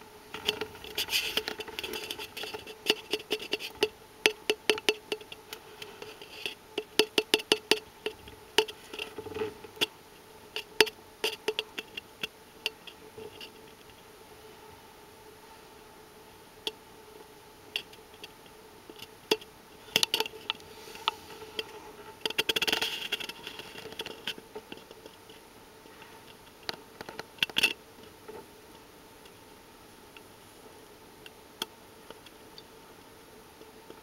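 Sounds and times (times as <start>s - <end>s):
faint steady hum: 0.0s - 34.0s
scratchy rustle: 0.4s - 3.8s
clicks and taps on cardboard tube: 0.4s - 5.4s, 6.8s - 8.8s.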